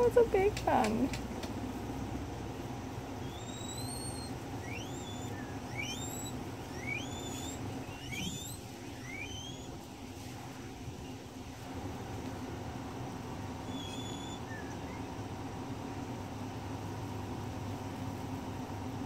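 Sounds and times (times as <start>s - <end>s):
low background hum: 0.0s - 19.0s
guinea pig squeaking: 3.2s - 9.9s, 13.6s - 15.0s.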